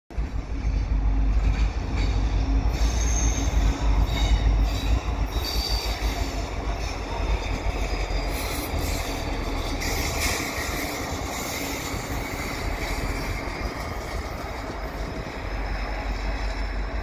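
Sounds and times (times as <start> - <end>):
deep diesel locomotive rumble: 0.1 - 17.0
faint wheel squeal: 2.7 - 6.5.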